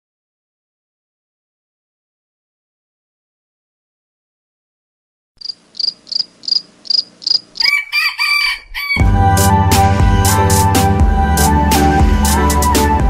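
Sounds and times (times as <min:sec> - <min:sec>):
cricket chirping: 0:05.4 - 0:07.7
rooster crowing: 0:05.8 - 0:09.0
loud music with drum beat: 0:09.0 - 0:13.0.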